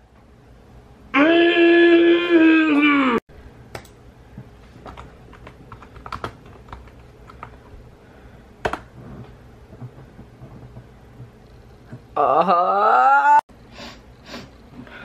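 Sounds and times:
computer keyboard typing: 0:04.9 - 0:07.7.

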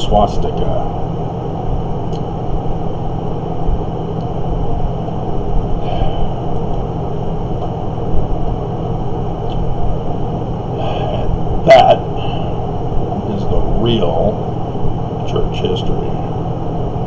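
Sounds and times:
low hum: 0:00.0 - 0:17.0
low rumbling background noise: 0:00.0 - 0:17.0.

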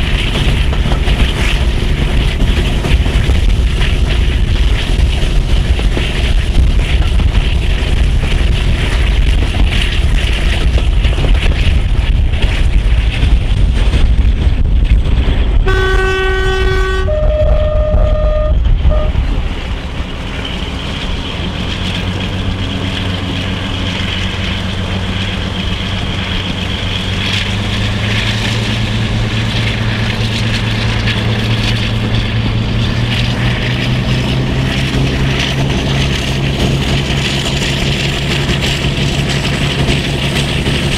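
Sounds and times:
diesel locomotive rumbling: 0:00.0 - 0:40.9
two-tone train horn: 0:15.6 - 0:19.3.

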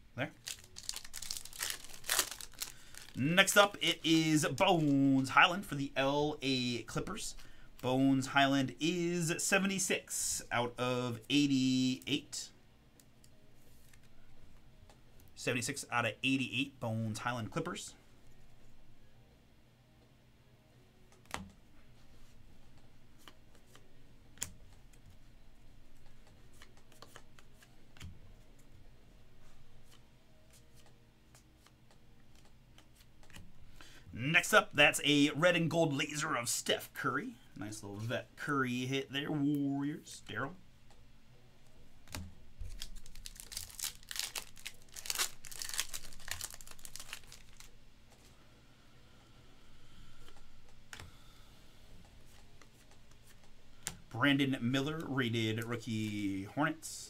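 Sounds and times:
plastic sleeve crinkling: 0:00.3 - 0:05.6, 0:42.1 - 0:47.8.

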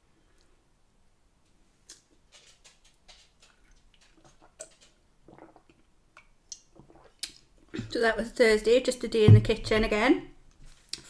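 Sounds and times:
lip smacks and clicks: 0:01.9 - 0:07.5
sipping and swallowing: 0:03.6 - 0:07.9.

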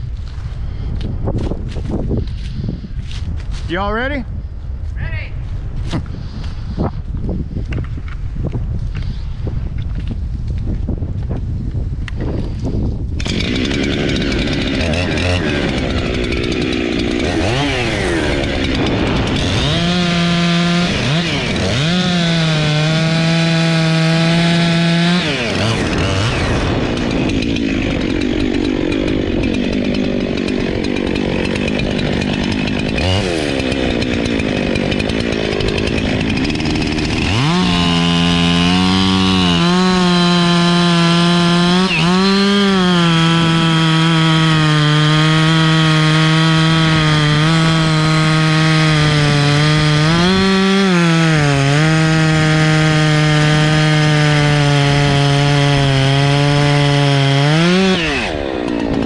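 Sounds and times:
chainsaw cutting tree trunk: 0:12.1 - 0:59.0.

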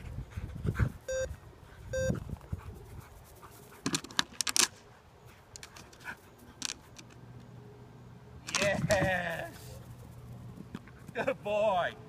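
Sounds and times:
dog panting: 0:00.0 - 0:01.0
short electronic beep: 0:01.1 - 0:01.3, 0:02.0 - 0:02.2.

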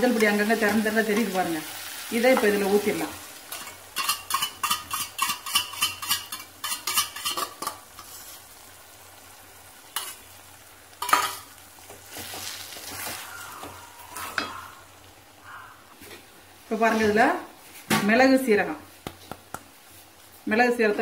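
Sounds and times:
egg sizzling in pan: 0:00.0 - 0:16.9
spoon scraping steel bowl: 0:03.5 - 0:08.1.

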